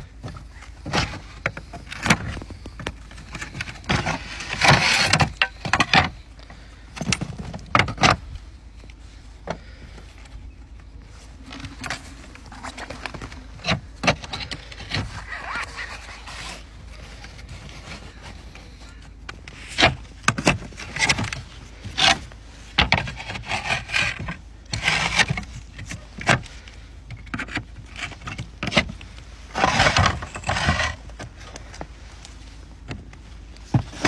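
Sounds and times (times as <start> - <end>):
slate scraping: 0.8 - 6.2, 11.3 - 18.4, 19.5 - 26.3, 27.4 - 31.2.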